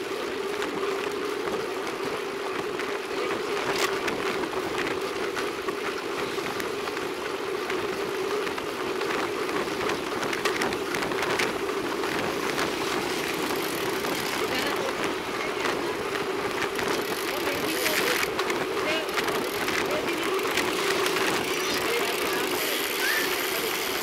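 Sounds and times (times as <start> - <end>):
bicycle tyre hum: 0.0 - 24.0
wind: 0.0 - 24.0.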